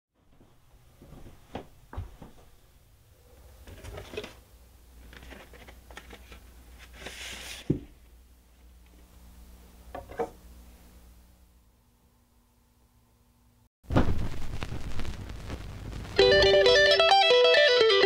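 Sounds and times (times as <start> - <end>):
cardboard sleeves rustling: 5.0 - 7.8.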